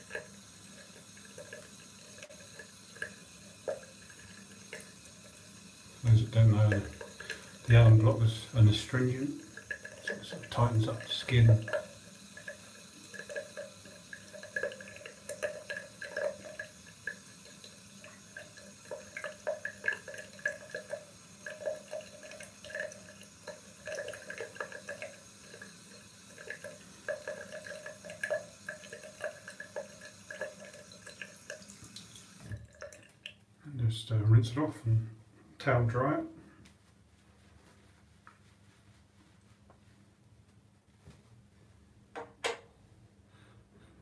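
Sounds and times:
tap water trickling into sink: 0:00.0 - 0:33.4.

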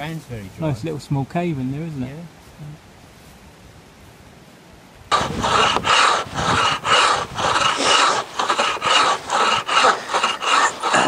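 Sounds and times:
saw rasping through wood: 0:05.1 - 0:11.0.

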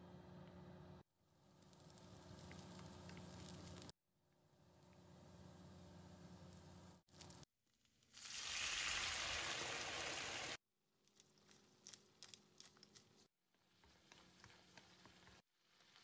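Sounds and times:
crackling and popping in a pan: 0:01.4 - 0:04.0, 0:04.7 - 0:16.0
food sizzling in a frying pan: 0:08.0 - 0:10.6.

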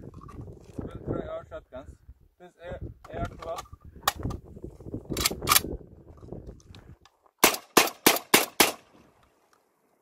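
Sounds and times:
shotgun shots: 0:07.4 - 0:08.9.

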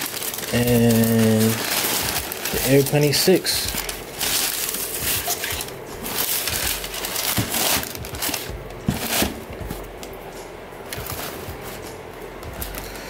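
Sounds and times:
tissue paper rustling: 0:00.0 - 0:09.8.

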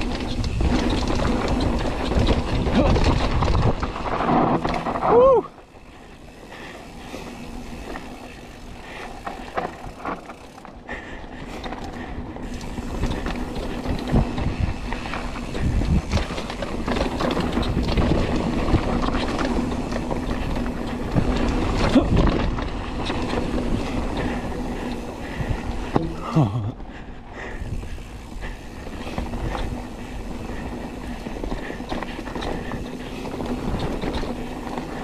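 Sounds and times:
bike rattling over bumps: 0:00.0 - 0:35.0
bike tyres rumbling on dirt: 0:00.0 - 0:35.0.

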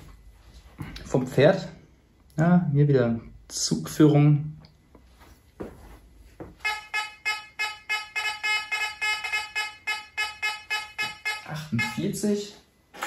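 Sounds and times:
metal detector buzzy beeps: 0:06.6 - 0:12.2.

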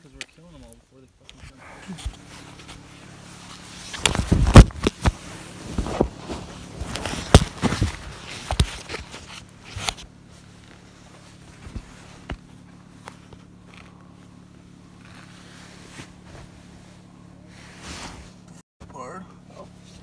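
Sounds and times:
tent fabric rustling and bumping: 0:02.0 - 0:13.8, 0:15.0 - 0:18.5.

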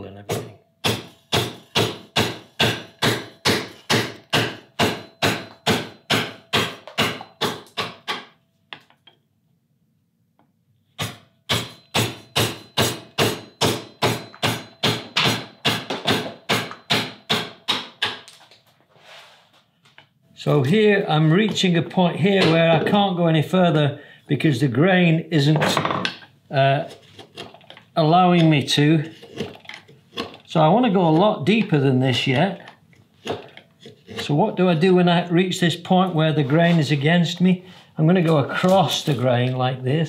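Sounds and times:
mallet striking carving gouge: 0:00.3 - 0:08.3, 0:11.0 - 0:18.2.

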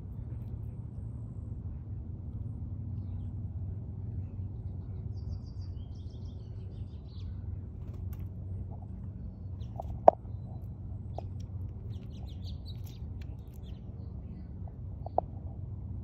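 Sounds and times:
low outdoor background rumble: 0:00.0 - 0:16.0
songbird chirping: 0:09.1 - 0:15.4.

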